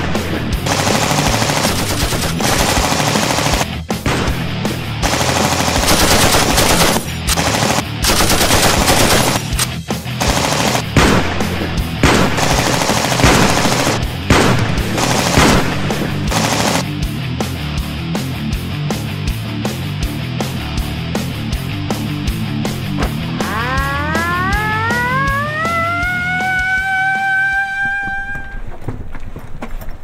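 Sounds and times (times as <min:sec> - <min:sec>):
background music with steady beat: 0:00.0 - 0:27.6
automatic gunfire bursts: 0:00.7 - 0:03.7, 0:05.0 - 0:11.2, 0:12.0 - 0:16.9.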